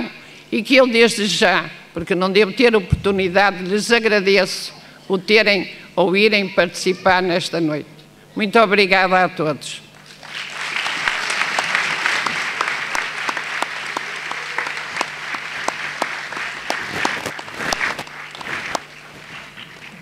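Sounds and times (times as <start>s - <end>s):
audience applause: 10.0s - 20.0s.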